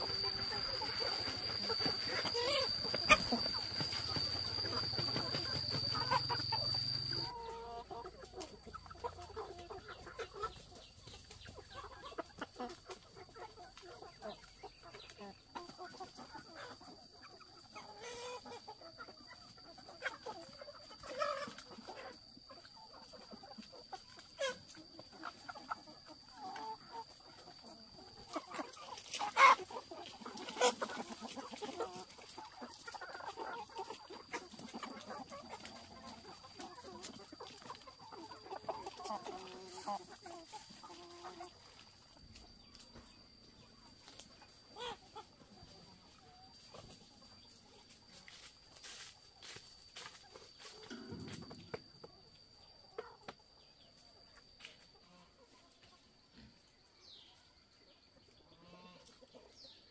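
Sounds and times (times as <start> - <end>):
thin steady high tone: 0.0 - 8.2
chickens clucking: 0.0 - 59.9.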